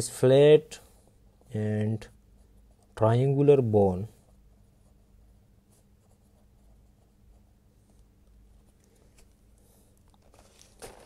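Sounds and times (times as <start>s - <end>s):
pen scratching on paper: 4.0s - 8.1s.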